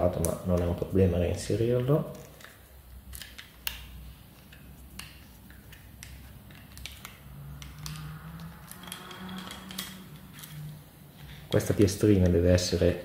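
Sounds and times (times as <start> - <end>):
lever and bolt clicks: 6.0 - 10.7.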